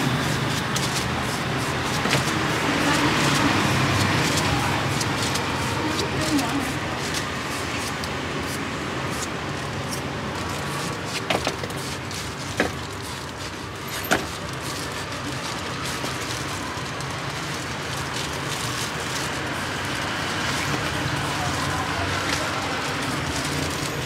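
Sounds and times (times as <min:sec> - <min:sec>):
low traffic hum: 0:00.0 - 0:24.0.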